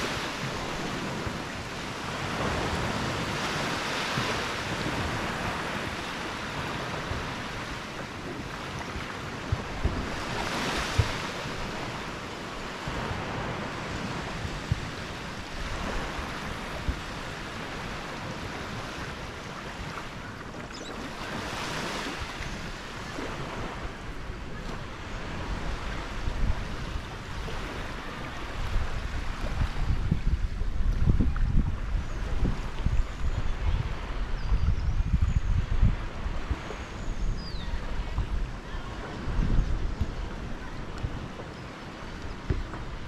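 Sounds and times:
small waves washing on sand: 0.0s - 43.0s.

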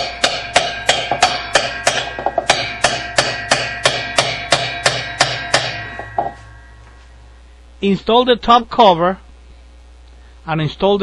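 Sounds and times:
hammer striking metal wrench: 0.0s - 7.0s.

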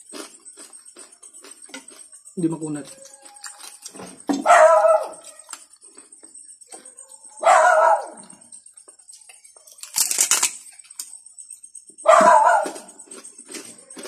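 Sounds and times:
dog calling: 2.9s - 5.6s, 6.7s - 8.5s, 12.0s - 13.0s.

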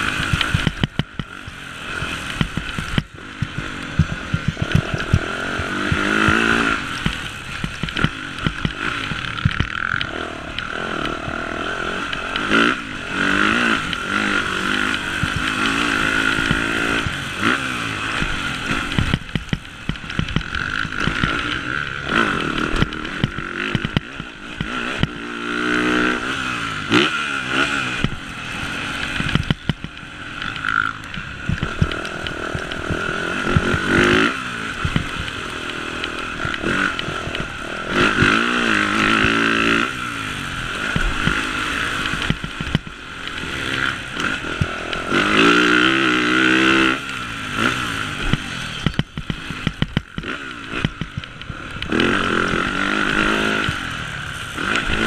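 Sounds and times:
motocross bike engine revving: 0.0s - 55.0s
bike clattering over rough ground: 0.1s - 27.1s.

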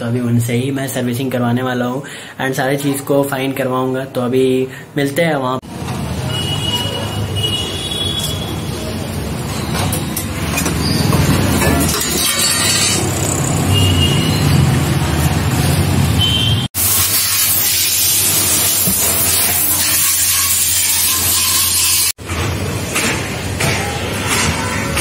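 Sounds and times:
street and vehicle noise: 5.6s - 25.0s.

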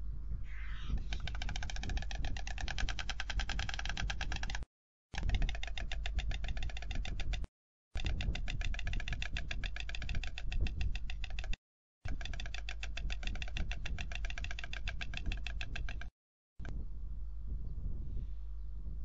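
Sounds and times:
wind on microphone: 0.0s - 4.6s, 8.0s - 19.0s
stork bill clattering: 1.0s - 16.1s.

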